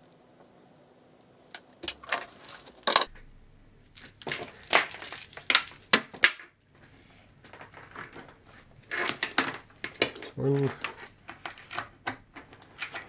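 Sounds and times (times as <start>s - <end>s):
metal connectors clinking: 3.9s - 6.8s, 7.6s - 11.9s.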